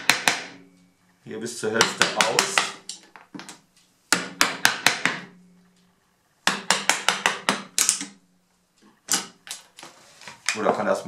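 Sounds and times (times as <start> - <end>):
mallet tapping chisel into wood: 0.0 - 0.6, 1.8 - 5.4, 6.4 - 8.2.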